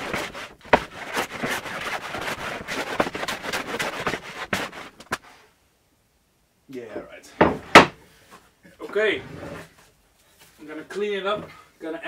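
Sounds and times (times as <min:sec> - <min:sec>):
hand plane scraping wood: 0:00.0 - 0:05.2
sharp knocks: 0:07.4 - 0:08.0.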